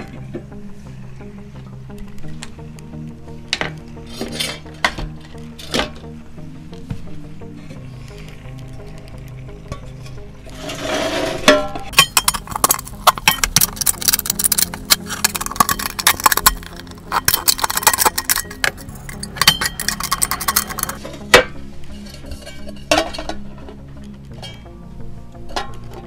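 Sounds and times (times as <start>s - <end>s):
tin snips cutting metal: 12.0s - 21.0s.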